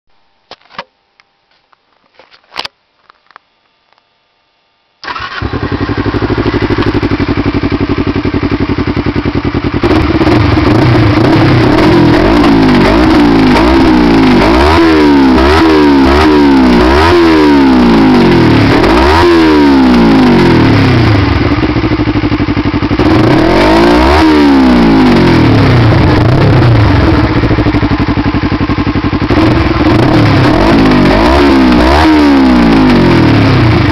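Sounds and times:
motorcycle engine idling and revving: 5.0 - 33.9.

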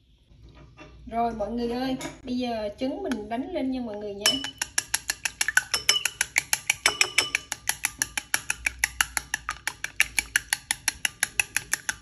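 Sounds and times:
chopsticks beating eggs in bowl: 3.9 - 12.0.

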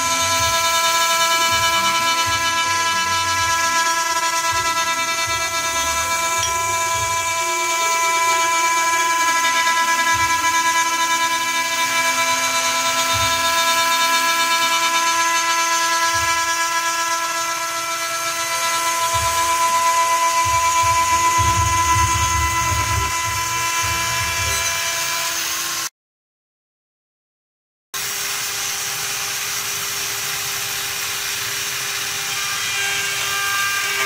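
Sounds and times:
hiss of metal cutting: 0.0 - 17.5, 28.0 - 32.3
milling spindle high whine: 0.0 - 25.9.

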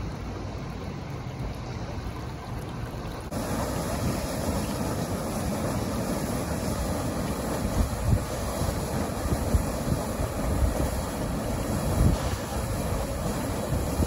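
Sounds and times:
floodwater rushing: 0.0 - 14.0
wind rumble on microphone: 3.3 - 14.0.

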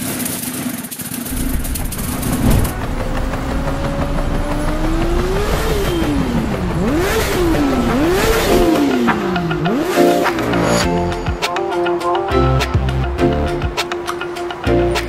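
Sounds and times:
engine revving: 1.3 - 10.8.

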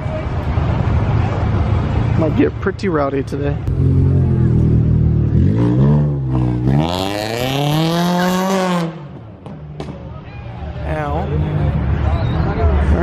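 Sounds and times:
car accelerating hard: 3.7 - 9.2.

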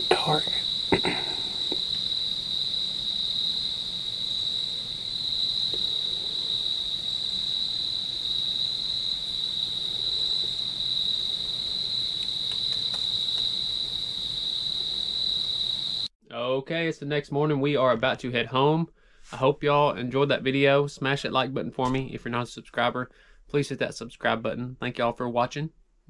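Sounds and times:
crickets trilling: 0.0 - 16.1.

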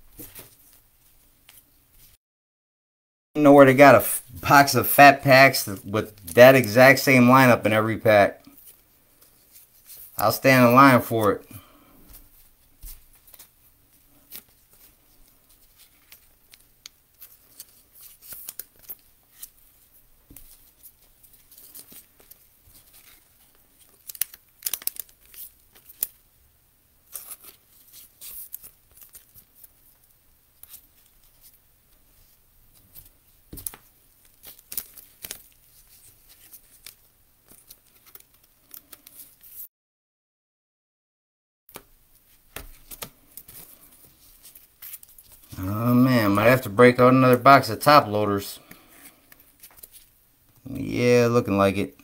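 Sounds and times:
plastic rustling: 11.9 - 26.2.

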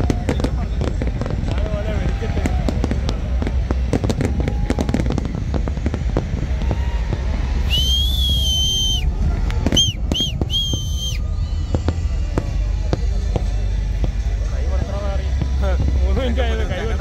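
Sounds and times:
fireworks bursting: 0.0 - 17.0
low rumble: 0.0 - 17.0
shrill whistle: 7.6 - 9.1, 9.7 - 12.0.

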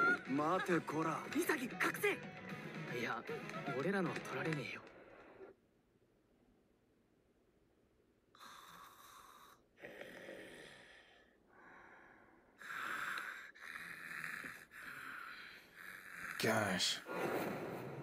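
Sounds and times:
cartoon character snoring: 8.4 - 11.3, 12.6 - 18.0.

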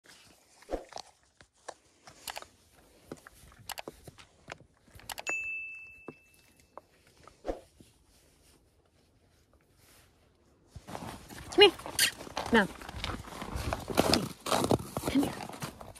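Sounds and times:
bright ding: 5.2 - 6.7.

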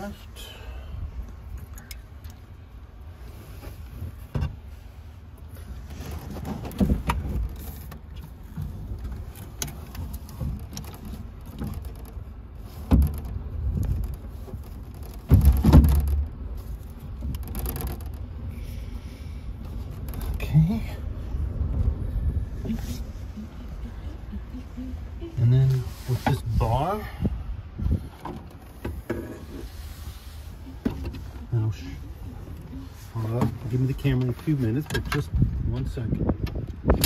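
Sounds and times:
steady low rumble: 0.0 - 37.0
knocks and clunks on metal cabinet: 15.2 - 16.3
heavy thump: 15.2 - 16.4.

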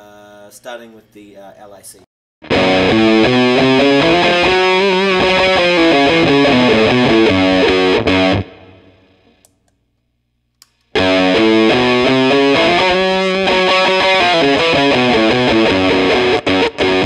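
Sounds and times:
electric guitar through fuzz pedal: 2.4 - 9.4, 11.0 - 17.0.

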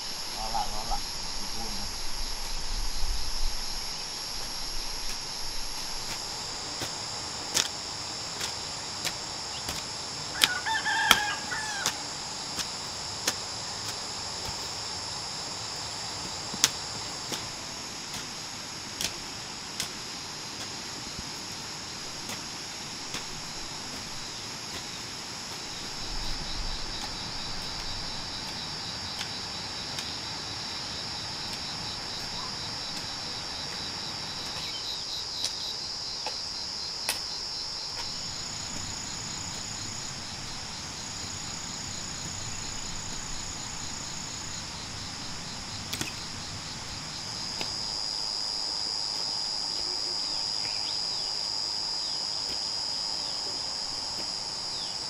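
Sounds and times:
insects shrilling: 0.0 - 55.0
hoe striking soil: 4.4 - 14.7, 22.1 - 30.2
rooster crowing: 10.3 - 12.2.

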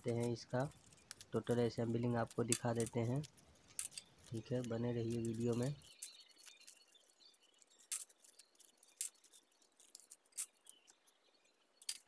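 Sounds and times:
plastic parts clicking: 0.0 - 6.8, 11.8 - 12.0.

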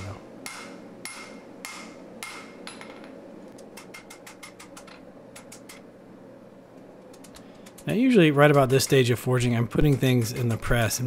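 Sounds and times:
hammer striking steel on anvil: 0.0 - 3.1.

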